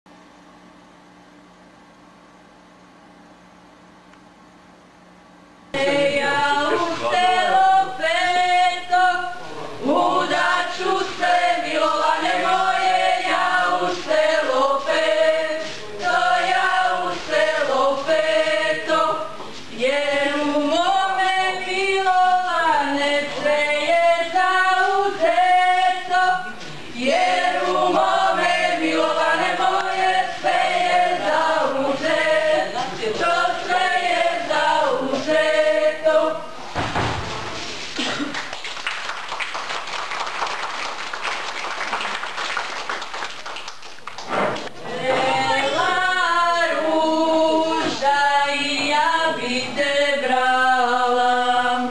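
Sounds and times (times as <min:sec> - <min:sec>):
group singing unaccompanied: 0:05.7 - 0:37.4, 0:44.3 - 0:51.9.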